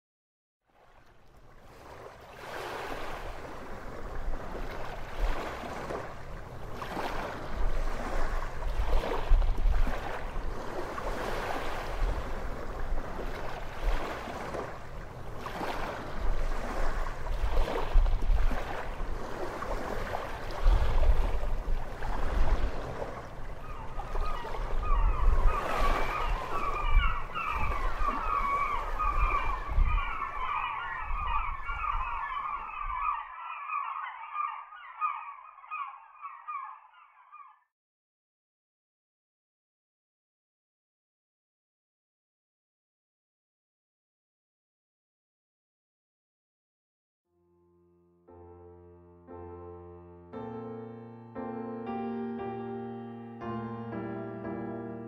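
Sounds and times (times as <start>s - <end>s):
ocean surf waves: 0.8s - 33.0s.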